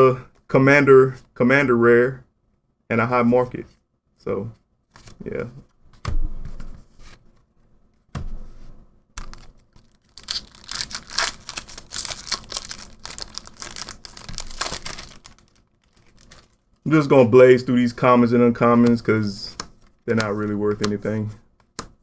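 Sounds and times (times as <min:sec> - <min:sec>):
wrapper tearing and crinkling: 0:09.2 - 0:16.7.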